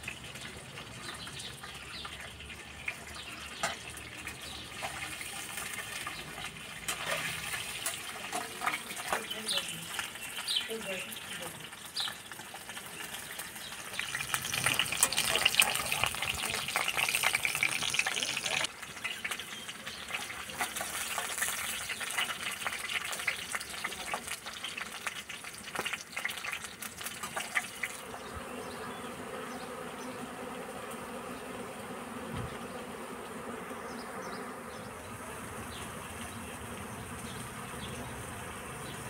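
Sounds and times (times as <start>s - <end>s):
vegetables frying in hot oil: 0.0s - 28.0s
honeybees humming: 7.6s - 18.7s, 27.6s - 39.0s.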